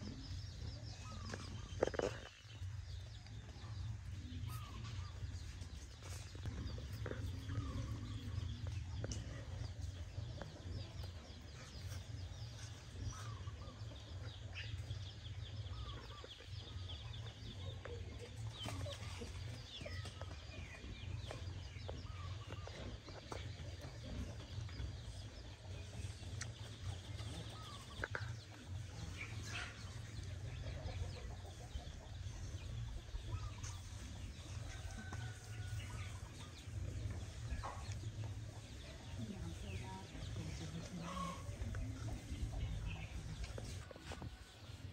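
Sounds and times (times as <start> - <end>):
chickens clucking: 0.0 - 44.9.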